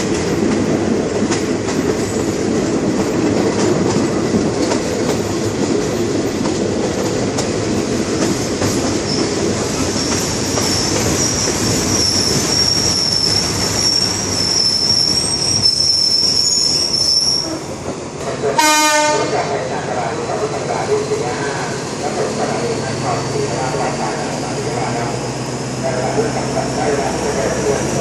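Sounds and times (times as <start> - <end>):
train rolling along rails: 0.0 - 28.0
high wheel squeal: 9.0 - 17.7.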